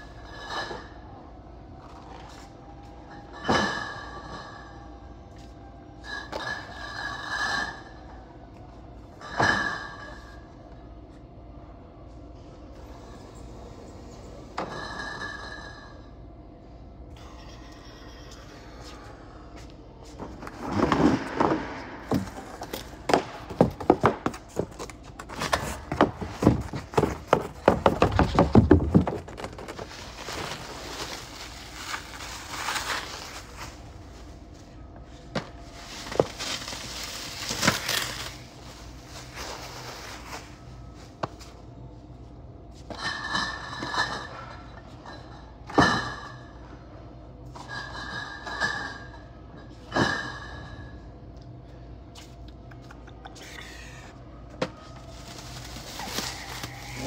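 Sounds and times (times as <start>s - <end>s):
cardboard cases knocking: 23.1s - 29.9s
plastic sheeting crackling: 29.2s - 34.0s, 35.8s - 40.5s, 55.0s - 57.0s.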